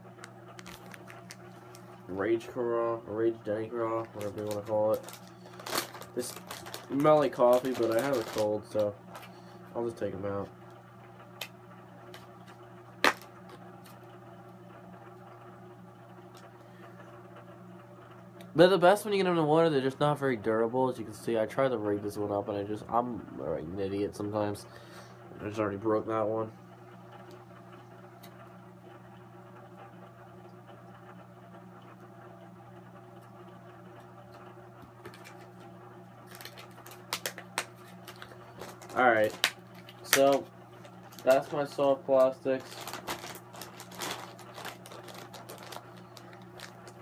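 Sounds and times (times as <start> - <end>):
low steady hum: 0.0 - 47.0
plastic package handled: 0.6 - 2.0, 3.8 - 9.3, 13.0 - 13.5, 35.0 - 35.6, 36.2 - 47.0.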